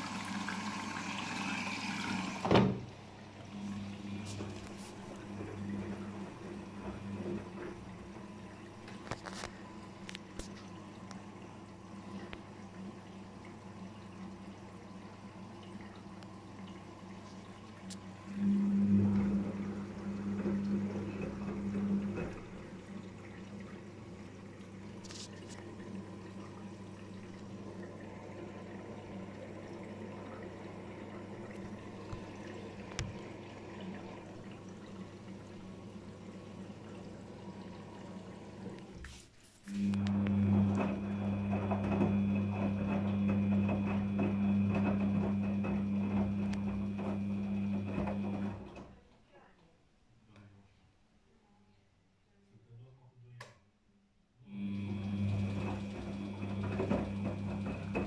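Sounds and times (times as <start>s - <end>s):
drum turning wet laundry: 0.0s - 10.6s, 17.1s - 49.0s, 54.5s - 58.0s
water rushing in washing machine: 0.0s - 49.1s, 54.5s - 58.0s
steady electric hum: 39.7s - 48.3s.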